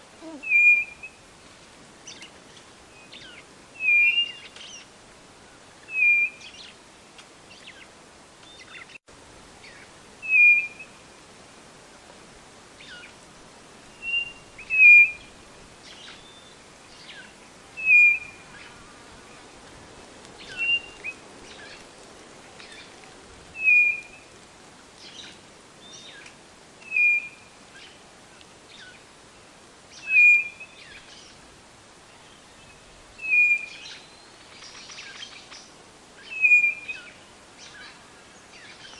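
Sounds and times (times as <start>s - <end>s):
bird whistled call: 0.4s - 1.2s, 3.2s - 4.8s, 5.9s - 6.6s, 10.2s - 11.0s, 14.0s - 15.3s, 17.8s - 18.4s, 20.5s - 21.1s, 23.6s - 24.2s, 26.8s - 27.5s, 30.0s - 31.0s, 33.2s - 35.4s, 36.2s - 37.2s.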